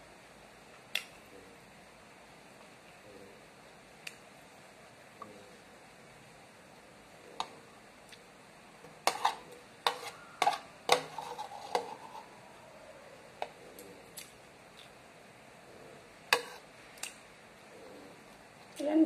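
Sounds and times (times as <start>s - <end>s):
cutlery clinking on bowl: 9.1s - 12.2s.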